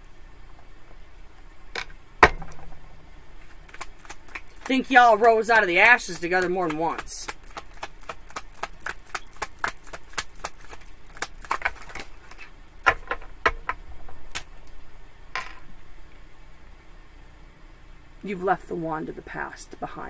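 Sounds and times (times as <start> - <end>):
cards being shuffled: 3.4 - 13.0.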